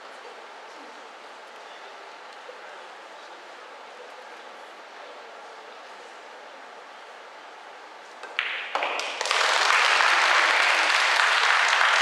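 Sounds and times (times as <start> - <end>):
audience applauding: 8.8 - 12.0.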